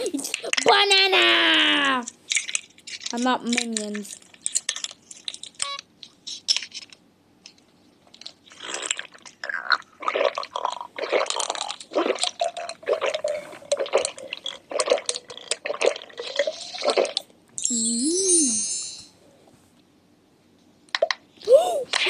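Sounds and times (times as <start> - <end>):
close-miked chewing and crunching: 8.0 - 17.3.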